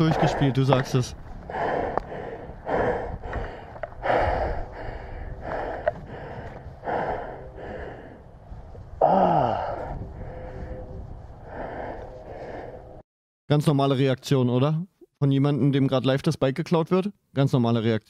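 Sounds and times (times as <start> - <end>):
man panting hard: 0.0 - 0.6, 1.4 - 13.0
man gasping: 1.5 - 8.2, 9.0 - 10.8.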